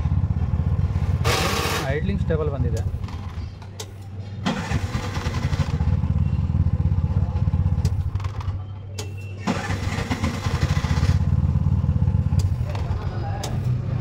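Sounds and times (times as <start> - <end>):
engine idling: 4.4 - 8.6, 9.4 - 14.0.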